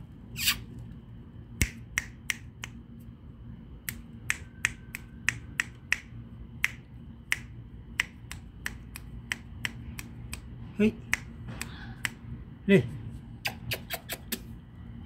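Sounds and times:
fingers snapping: 1.6 - 2.8, 3.8 - 12.2, 13.4 - 14.5.

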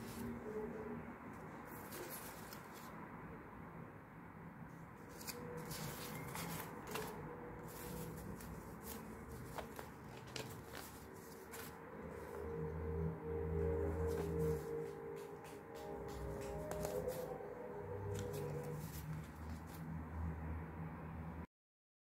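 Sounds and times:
banknotes rustling: 1.4 - 3.0, 5.0 - 12.5, 13.6 - 20.0.

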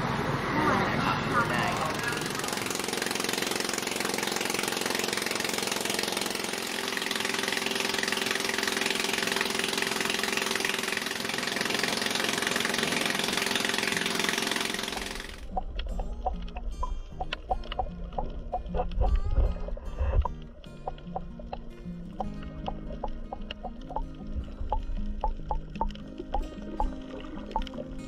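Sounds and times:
boat engine running: 0.0 - 28.0.

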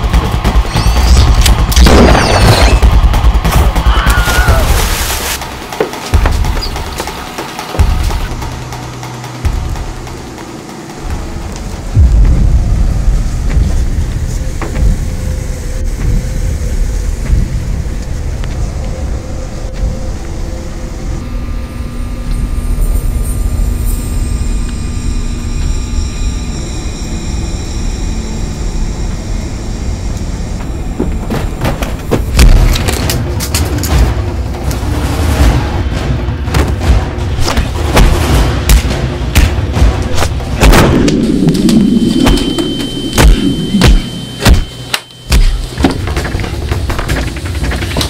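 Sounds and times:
dark bass-heavy film score drone: 0.0 - 48.0
low rumble: 7.8 - 45.2
loud hit with sharp strikes: 36.5 - 45.4
sustained high synth tones: 41.2 - 45.4.

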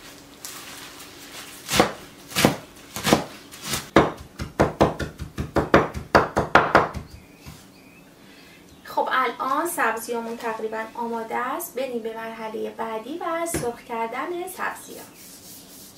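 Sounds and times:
cleaver chopping on wooden board: 1.7 - 7.6.

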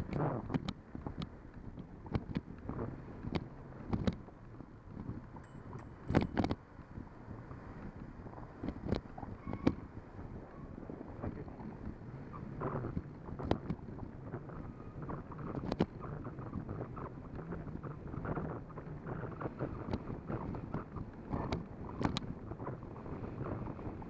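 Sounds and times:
wind buffeting microphone: 0.0 - 24.0
bicycle rattle: 5.3 - 6.5.

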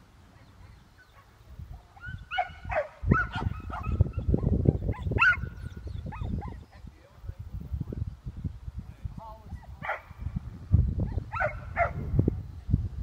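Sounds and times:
dog barking and yipping: 2.0 - 6.7, 11.1 - 12.0.

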